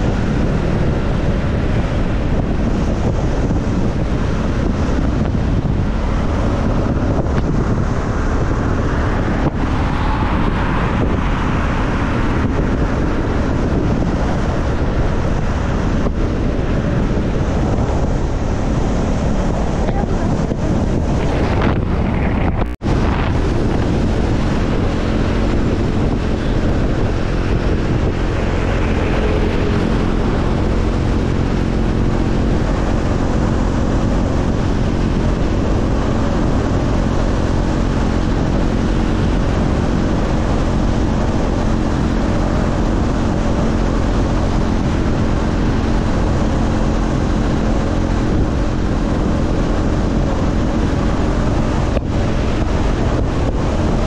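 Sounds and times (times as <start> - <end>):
motorcycle engine cruising: 0.0 - 54.0
wind noise on microphone: 0.0 - 54.0.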